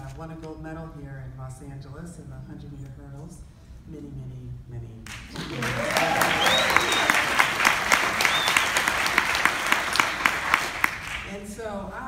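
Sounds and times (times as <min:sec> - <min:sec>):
audience applauding: 0:05.1 - 0:11.3
close hands clapping: 0:05.1 - 0:11.3
short high cheers: 0:05.4 - 0:10.7.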